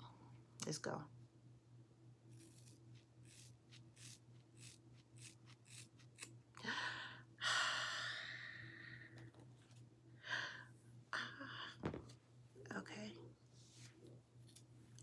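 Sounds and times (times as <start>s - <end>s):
shears snipping hair: 2.3s - 6.4s.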